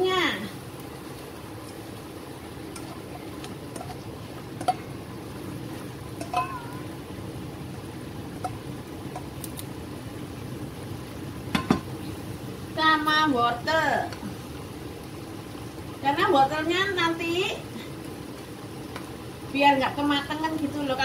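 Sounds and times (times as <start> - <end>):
broth bubbling in a pot: 0.0 - 21.0
spatula clinking metal bowl: 4.6 - 4.8, 6.2 - 6.6.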